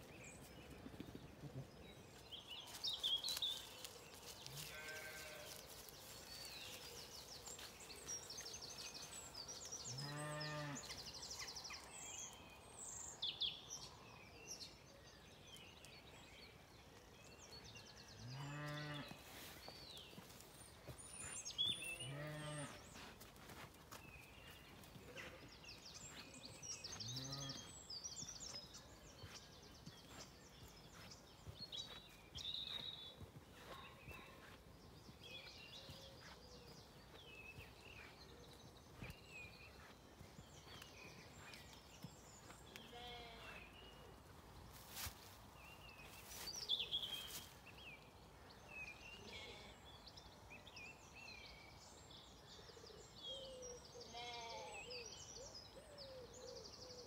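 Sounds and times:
songbirds singing: 0:00.0 - 0:57.0
sheep bleating: 0:04.6 - 0:05.6.

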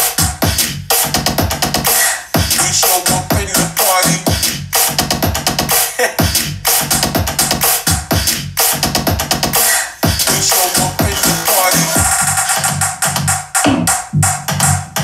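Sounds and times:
electronic hip-hop over speaker: 0:00.0 - 0:15.0
record scratching: 0:09.4 - 0:12.7.

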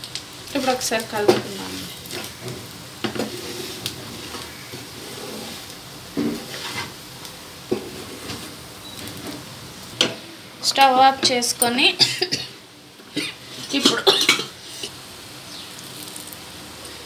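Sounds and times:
food sizzling in oil: 0:00.0 - 0:17.0
spoon scraping and knocking pan: 0:00.6 - 0:05.6, 0:06.2 - 0:07.0, 0:07.7 - 0:08.5.

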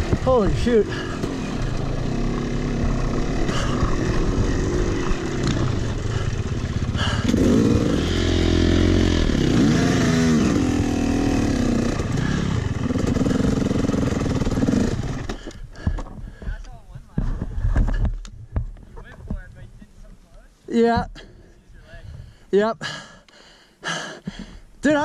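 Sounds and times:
dirt bike engine revving: 0:00.0 - 0:15.6.

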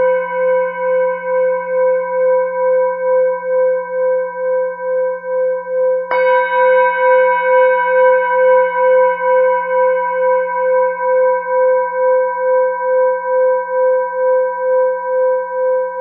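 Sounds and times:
singing bowl ringing: 0:00.0 - 0:16.0
singing bowl struck: 0:06.1 - 0:11.6.

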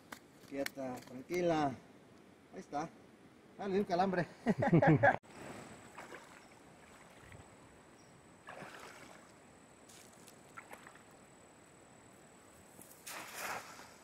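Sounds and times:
faint water sloshing: 0:05.3 - 0:11.7, 0:12.9 - 0:14.0
soft swishes of wet net: 0:12.8 - 0:14.0.

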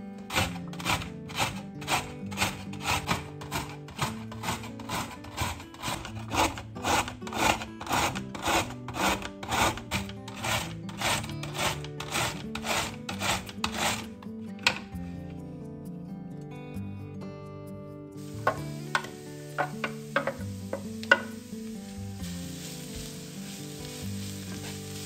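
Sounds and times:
carrot rasping on grater: 0:00.3 - 0:14.1.

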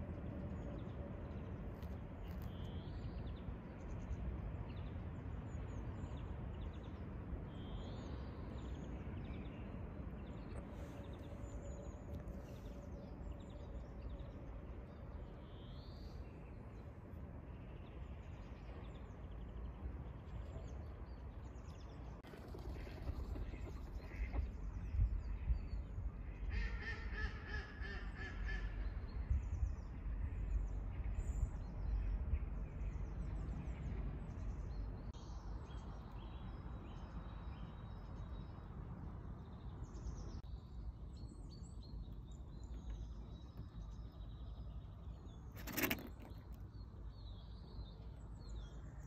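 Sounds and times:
wind rumble on microphone: 0:00.0 - 0:49.0
small birds chirping: 0:39.3 - 0:49.0.

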